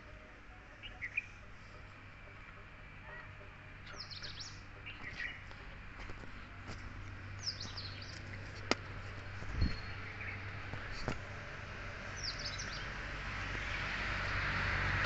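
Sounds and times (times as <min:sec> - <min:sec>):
low background hum: 0:00.0 - 0:14.4
small birds chirping: 0:03.1 - 0:05.6, 0:07.3 - 0:08.8, 0:09.4 - 0:11.2, 0:12.1 - 0:13.0.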